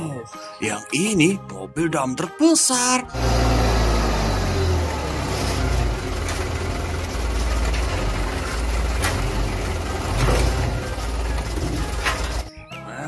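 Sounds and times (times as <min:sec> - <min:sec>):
diesel truck engine running: 0:03.1 - 0:12.5.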